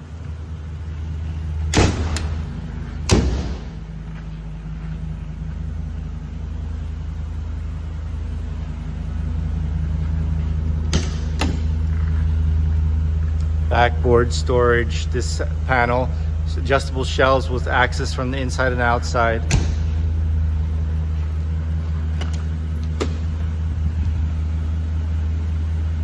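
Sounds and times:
engine idling: 0.0 - 26.0
sharp knocks: 10.9 - 11.7.

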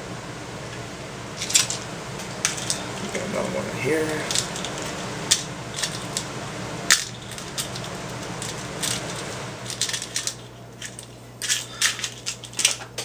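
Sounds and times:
metal parts clinking on glass: 8.4 - 13.0.

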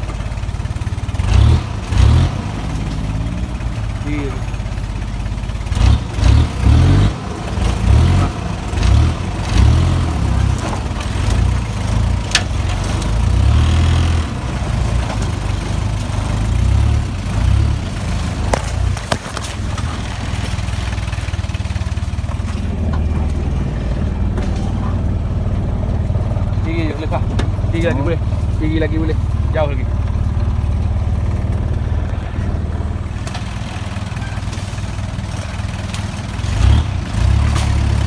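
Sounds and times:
engine labouring in cabin: 0.0 - 38.0
vehicle jolting knocks: 18.3 - 21.1.

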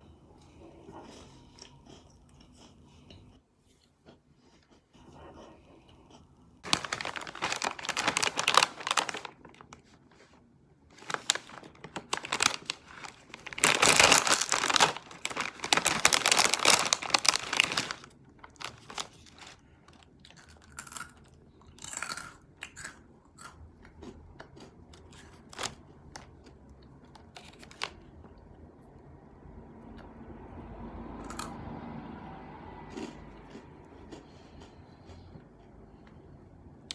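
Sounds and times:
snack bag crinkling and tearing: 6.6 - 10.3, 10.9 - 23.0, 24.0 - 28.1.

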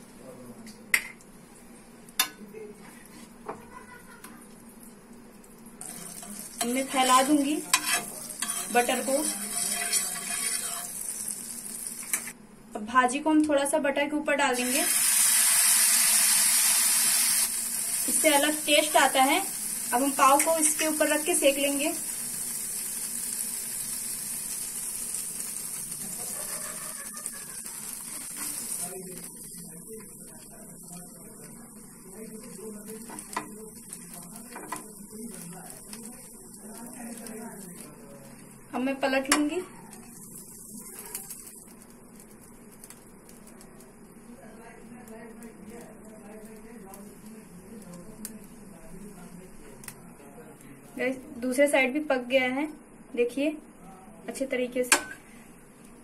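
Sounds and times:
food sizzling on hot griddle: 5.8 - 12.4, 14.5 - 52.3.

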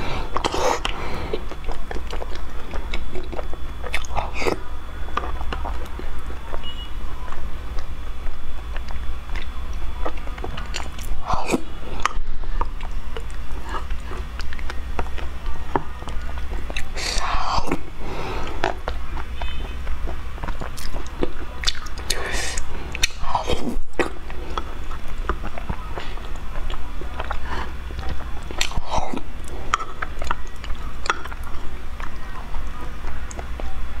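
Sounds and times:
steady low hum: 0.0 - 34.0
wet smacking and slurping: 7.3 - 17.9, 18.5 - 33.7.

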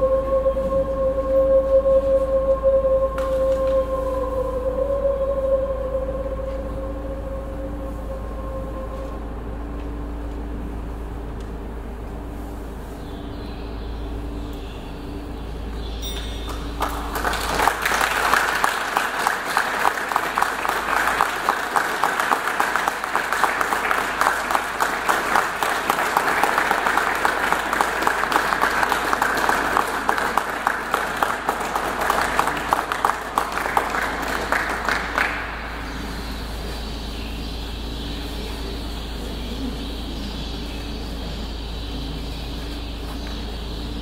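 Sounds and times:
audience applauding: 16.4 - 35.9.

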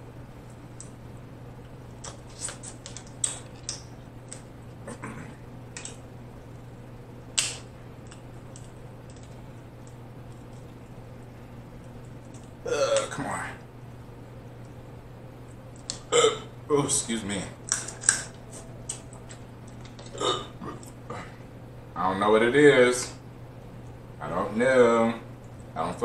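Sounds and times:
low hum: 0.0 - 26.0
crab shells cracking: 1.6 - 4.6, 5.7 - 6.6, 7.2 - 13.2, 15.5 - 16.1, 17.6 - 21.0.

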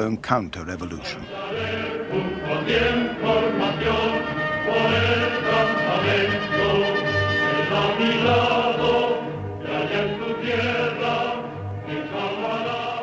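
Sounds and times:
choir singing marching song: 1.2 - 13.0.

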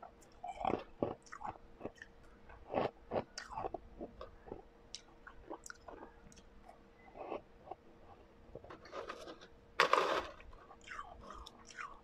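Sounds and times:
person chewing crunchy ice: 0.4 - 6.4, 9.9 - 12.0.

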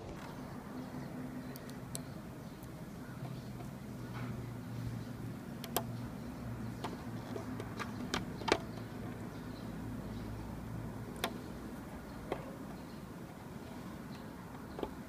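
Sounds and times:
small sharp clicks: 1.4 - 4.4, 5.6 - 9.3, 11.0 - 12.9.

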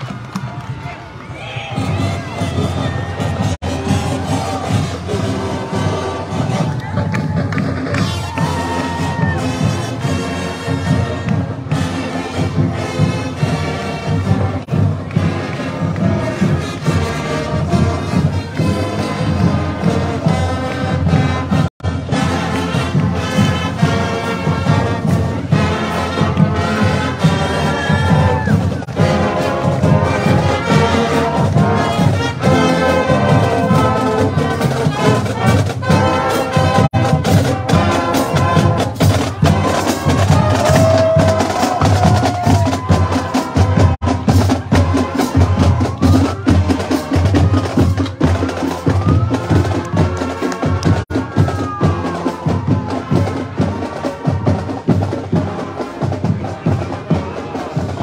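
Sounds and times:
brass section playing: 1.8 - 7.0, 7.7 - 58.0
marching drum beat: 1.8 - 58.0
clarinets and saxophone: 7.9 - 41.8.

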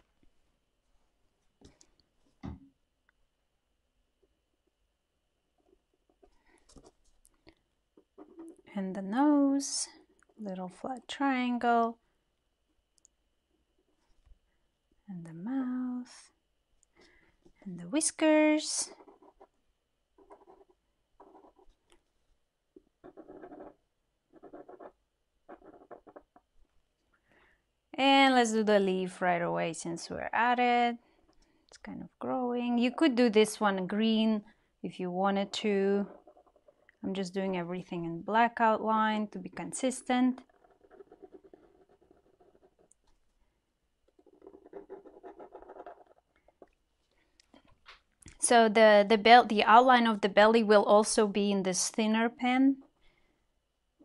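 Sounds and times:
pen scratching on paper: 18.8 - 19.6, 20.2 - 21.8, 22.8 - 26.4, 36.0 - 36.9, 40.4 - 42.9, 44.0 - 46.6.

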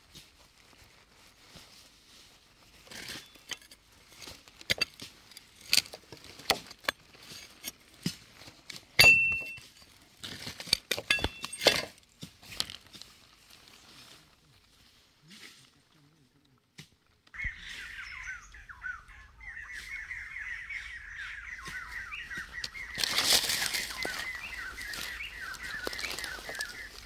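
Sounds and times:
fingers digging in stony soil: 2.6 - 13.8, 22.6 - 27.0.

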